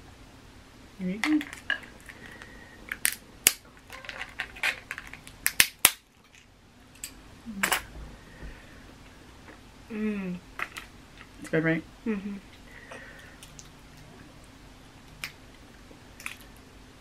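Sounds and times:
crab shells cracking: 0:01.5 - 0:06.4.

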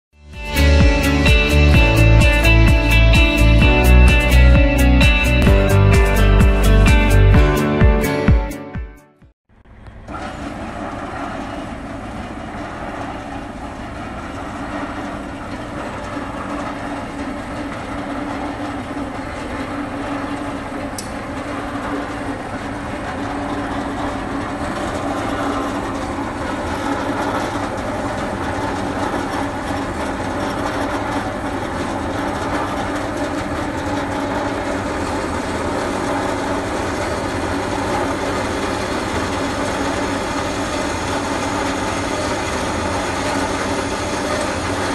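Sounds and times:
band saw cutting metal tubing: 0:10.1 - 0:44.9.

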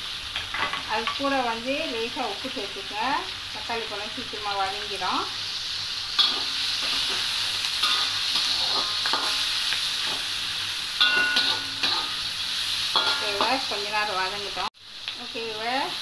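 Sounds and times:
vegetables sizzling in hot oil: 0:00.0 - 0:16.0
metal spatula clinking on pan: 0:11.0 - 0:12.2, 0:13.0 - 0:13.6.

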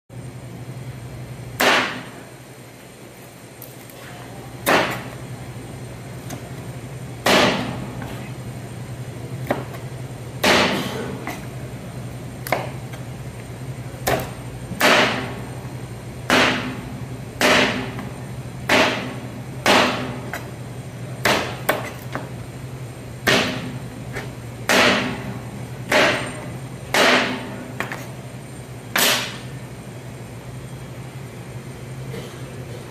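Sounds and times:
knife chopping on cutting board: 0:09.4 - 0:09.8.

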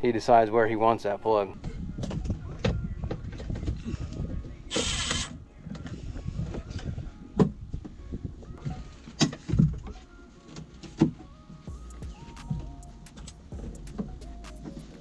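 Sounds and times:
cordless driver running: 0:04.7 - 0:05.4.

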